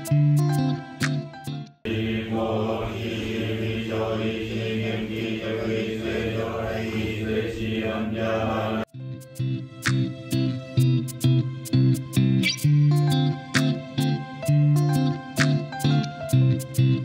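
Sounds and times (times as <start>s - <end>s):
monotone chanting: 1.9s - 8.9s.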